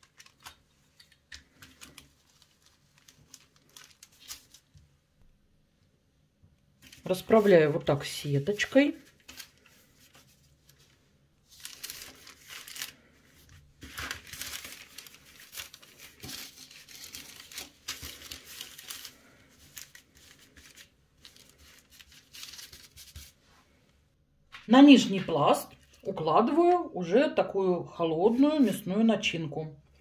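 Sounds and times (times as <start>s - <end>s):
baking paper rustling and crinkling: 0.0s - 5.0s, 6.8s - 23.8s, 28.2s - 28.9s.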